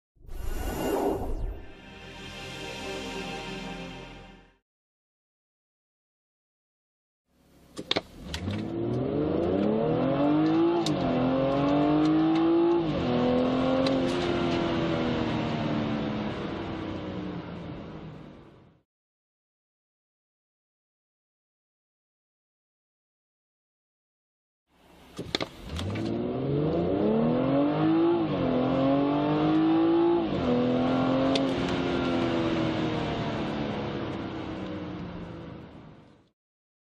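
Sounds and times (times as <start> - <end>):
car engine accelerating: 8.2 - 18.3, 25.2 - 36.1.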